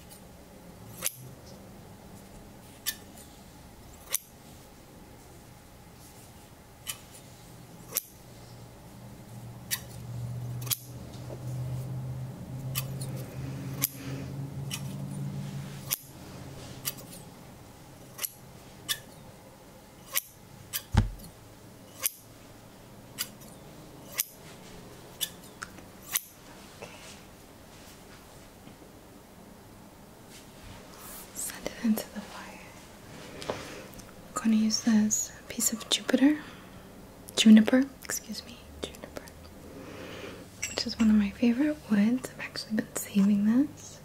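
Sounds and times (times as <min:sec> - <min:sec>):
soft low hum: 0:00.0 - 0:44.0
scissors snipping: 0:01.0 - 0:01.2, 0:10.6 - 0:10.9, 0:24.1 - 0:24.4
low thump: 0:20.9 - 0:21.3.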